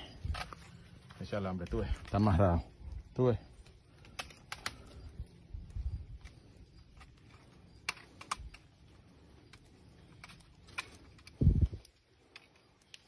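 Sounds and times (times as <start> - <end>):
wire clicks and scrapes: 4.0 - 5.1, 5.9 - 13.0.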